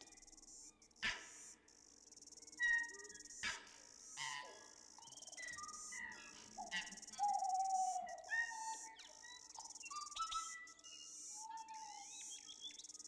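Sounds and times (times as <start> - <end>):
insects chirring: 0.0 - 3.4, 4.0 - 13.0
birds calling and whistling: 5.0 - 13.0.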